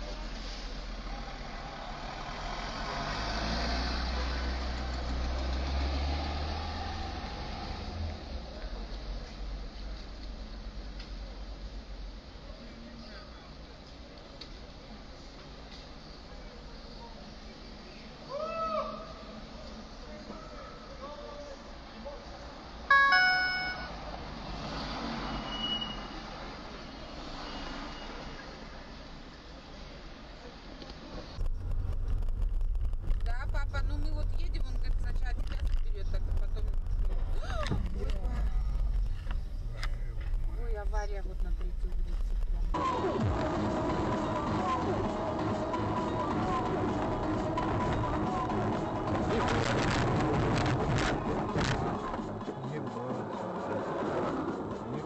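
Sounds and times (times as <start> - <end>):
street noise: 0.0 - 55.0
traffic noise from inside car: 0.0 - 55.0
faint high whistle: 25.3 - 26.2, 26.8 - 28.5.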